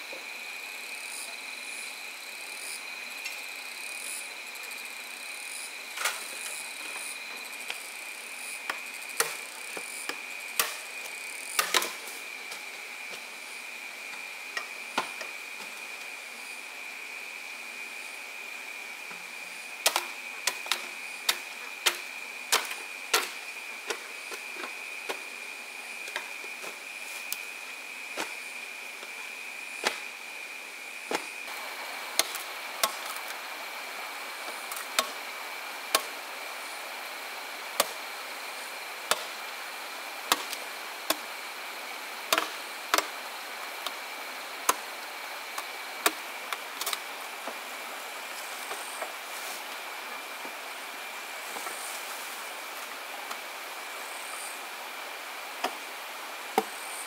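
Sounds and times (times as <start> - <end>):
steady high-pitched hum: 0.0 - 57.0.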